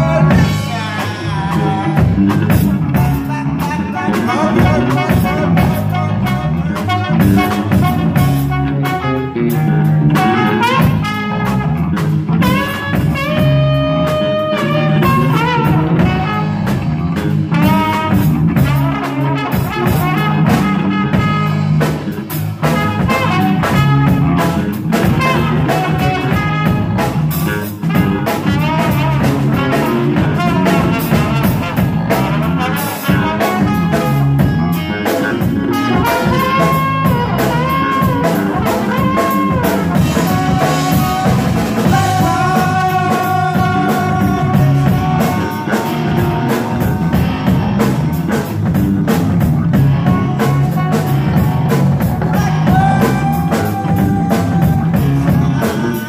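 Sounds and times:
electric bass: 0.0 - 56.0
electric guitar: 0.0 - 56.0
trombone: 0.0 - 56.0
drum kit hits: 35.4 - 55.6.

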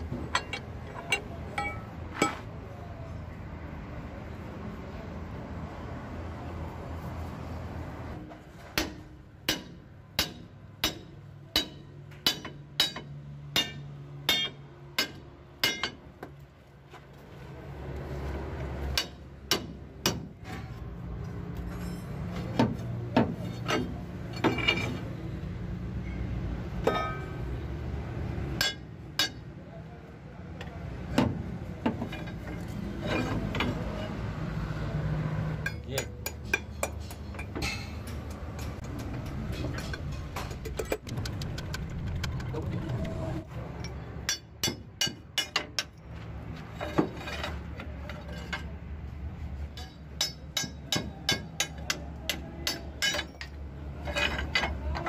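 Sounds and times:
hammer striking steel punch: 8.8 - 16.0.

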